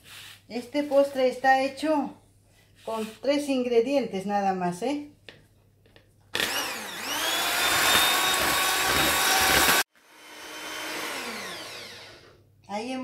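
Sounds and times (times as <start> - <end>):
electric hand mixer whining: 6.4 - 12.4.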